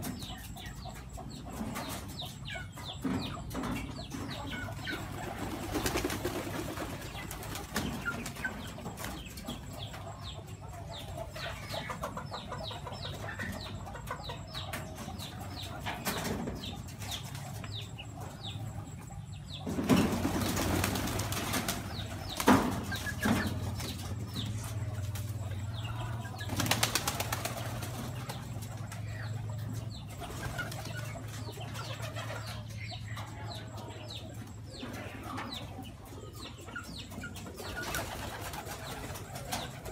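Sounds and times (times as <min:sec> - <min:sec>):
pigeon wings flapping: 0:05.4 - 0:07.7, 0:20.2 - 0:22.5, 0:26.5 - 0:28.0.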